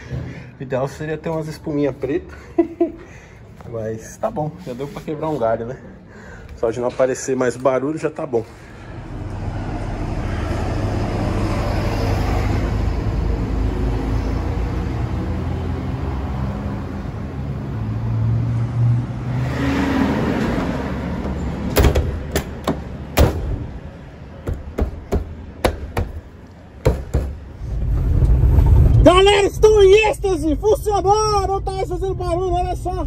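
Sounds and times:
low rumble: 0:27.5 - 0:33.0.

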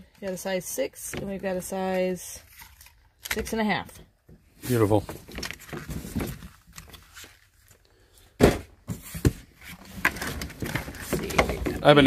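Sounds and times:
loud thump: 0:08.4 - 0:08.8.

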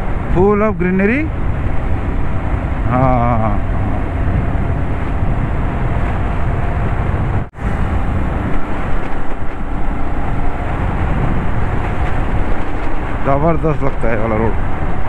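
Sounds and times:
motorcycle engine and road noise: 0:00.0 - 0:15.0
wind rush: 0:00.0 - 0:15.0.

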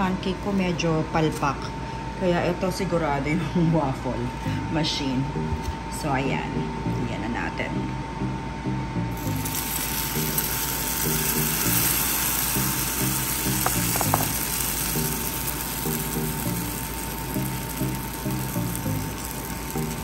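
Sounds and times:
background music with bass line: 0:07.9 - 0:20.0
batter sizzling: 0:09.2 - 0:20.0.

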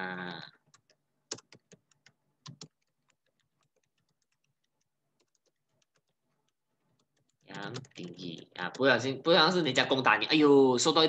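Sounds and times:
keyboard typing: 0:00.5 - 0:09.2.

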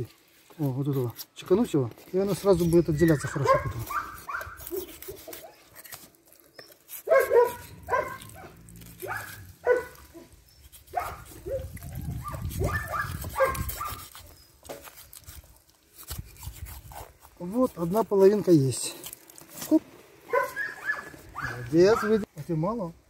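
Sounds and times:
dog yipping: 0:03.0 - 0:05.7, 0:07.0 - 0:14.2, 0:20.3 - 0:22.3.

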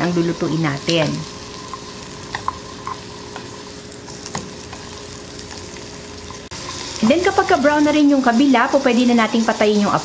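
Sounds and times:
squash sizzling in butter: 0:00.0 - 0:10.0.

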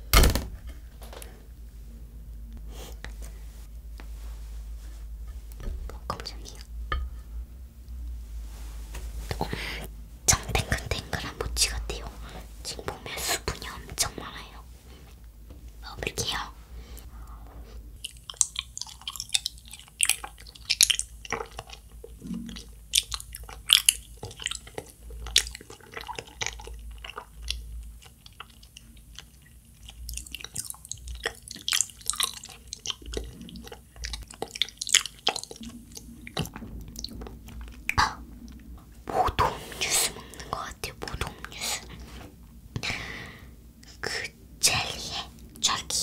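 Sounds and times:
wet chewing of jelly: 0:18.0 - 0:38.8.

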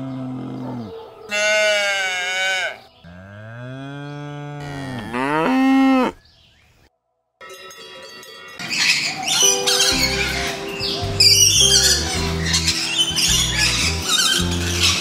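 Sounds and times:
cattle mooing: 0:00.0 - 0:06.2.

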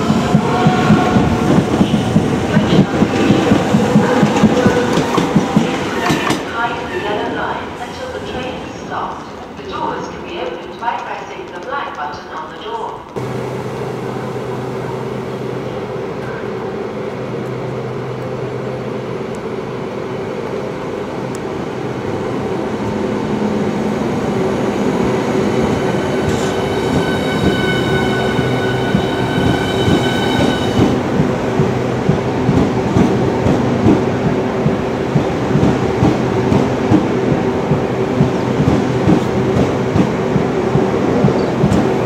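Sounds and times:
electric train passing: 0:13.2 - 0:42.0.

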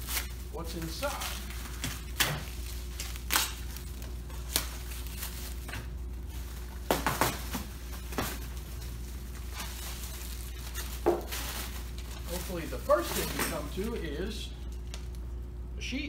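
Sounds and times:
plastic wrap crackling: 0:00.0 - 0:15.3
low room hum: 0:00.0 - 0:16.0.

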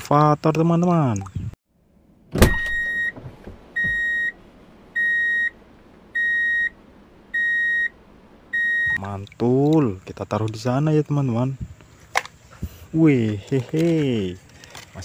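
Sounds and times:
reversing alarm beeping: 0:02.5 - 0:03.2, 0:03.8 - 0:04.4, 0:05.0 - 0:05.6, 0:06.2 - 0:09.0.

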